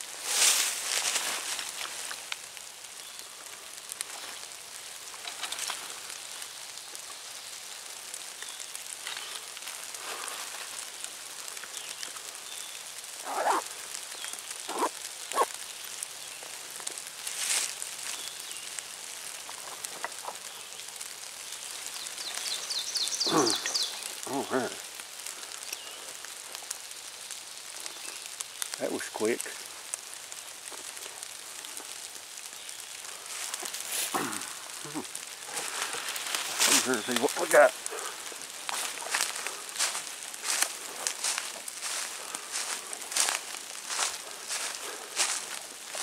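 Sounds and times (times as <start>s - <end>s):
dry leaves crackling and rustling: 0.0s - 46.0s
short sharp calls: 13.2s - 13.6s, 14.7s - 15.5s.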